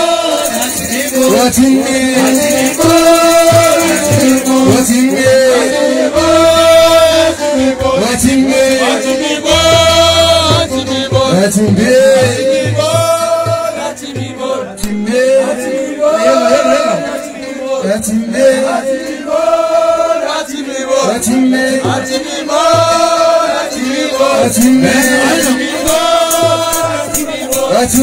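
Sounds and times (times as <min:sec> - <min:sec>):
men singing a chant: 0:00.0 - 0:28.0
percussion strikes: 0:00.0 - 0:28.0.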